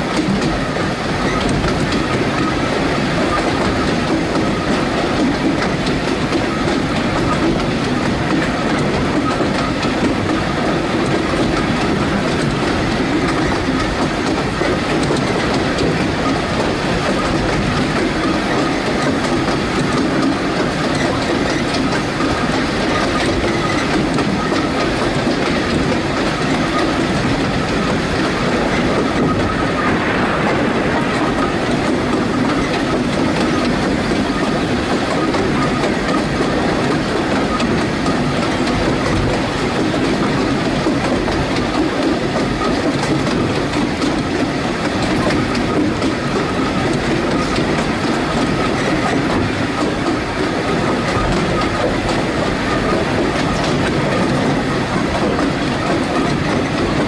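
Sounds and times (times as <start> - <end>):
train wheels rumbling and clacking: 0.0 - 57.0.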